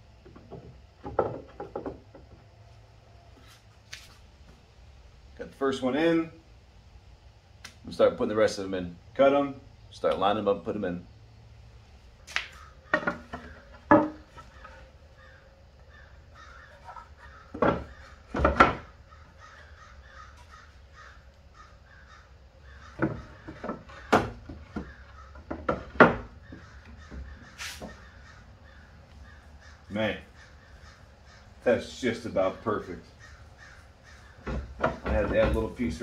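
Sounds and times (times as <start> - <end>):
wooden boards knocking: 0.2 - 2.4, 12.9 - 14.8, 16.7 - 19.0, 22.7 - 28.1, 34.3 - 36.0
crows cawing: 12.3 - 35.0.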